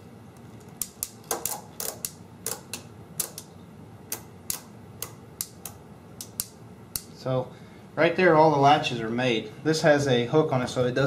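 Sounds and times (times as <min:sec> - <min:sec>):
adding machine clicking: 0:00.7 - 0:03.5.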